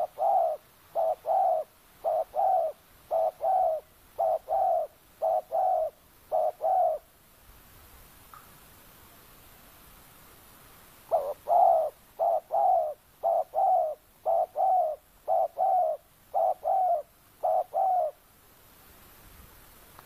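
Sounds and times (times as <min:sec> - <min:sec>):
dove cooing: 0:00.0 - 0:07.1, 0:11.1 - 0:18.2.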